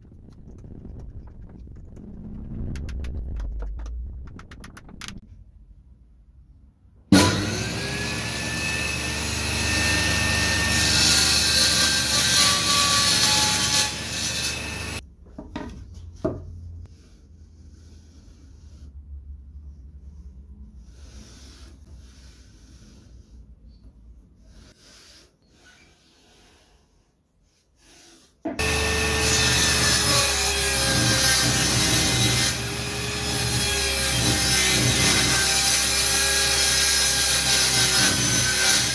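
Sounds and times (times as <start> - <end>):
table saw motor whining: 28.6 - 38.9.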